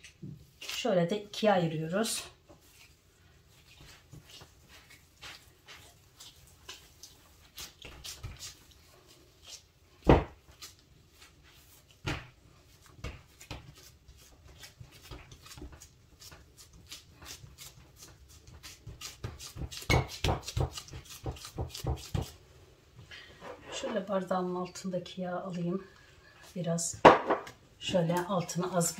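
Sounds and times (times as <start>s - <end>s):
hands patting dough on glass: 9.4s - 22.4s.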